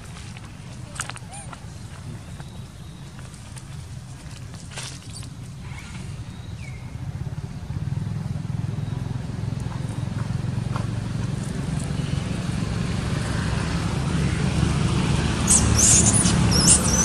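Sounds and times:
baby monkey squealing: 0:15.4 - 0:17.0.

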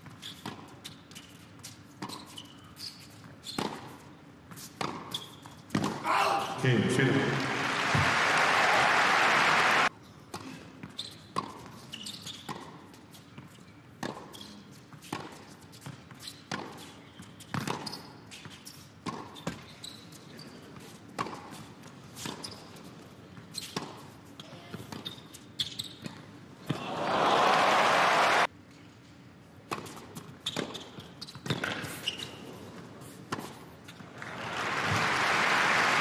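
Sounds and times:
shoe squeaks: 0:00.0 - 0:05.8, 0:10.8 - 0:26.2, 0:30.2 - 0:33.2
crowd applause: 0:06.6 - 0:09.9, 0:26.8 - 0:28.5, 0:34.2 - 0:36.0.

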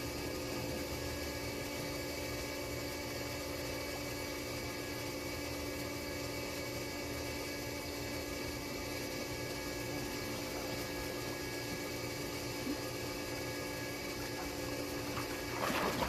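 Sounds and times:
pool filter pump humming: 0:00.0 - 0:16.0
faint water noise: 0:14.2 - 0:16.0.

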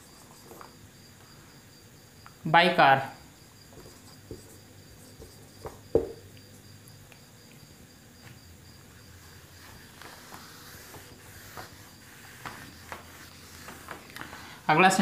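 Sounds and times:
marker pen writing on whiteboard: 0:03.7 - 0:06.3, 0:08.8 - 0:14.5
soft knocks: 0:05.2 - 0:06.2.

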